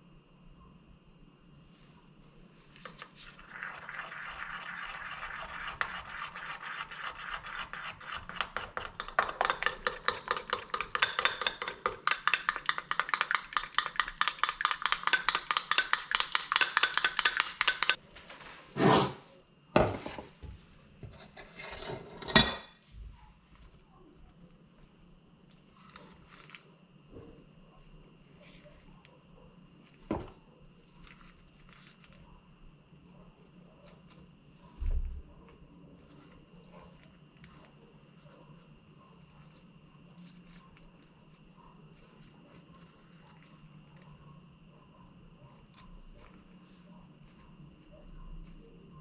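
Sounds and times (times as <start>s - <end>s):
metal spoon stirring in bowl: 2.8s - 18.0s, 21.0s - 22.8s
objects knocking on counter: 19.8s - 21.2s, 30.1s - 30.4s.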